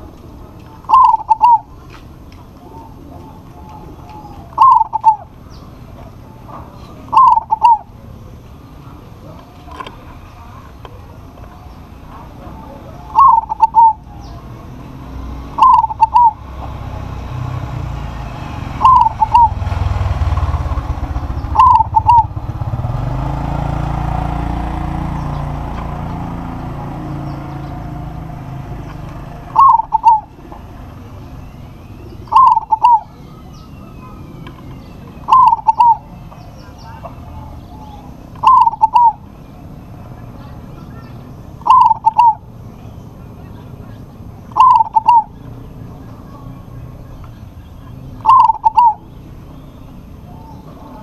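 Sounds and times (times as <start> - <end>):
dove cooing: 0.0 - 16.8, 18.7 - 39.6, 40.4 - 42.6, 44.5 - 46.8, 48.1 - 49.3
low rumble: 18.0 - 28.8.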